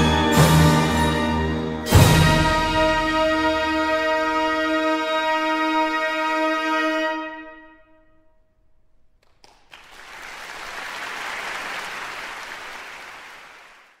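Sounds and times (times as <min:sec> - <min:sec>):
audience applause: 0:09.2 - 0:14.0.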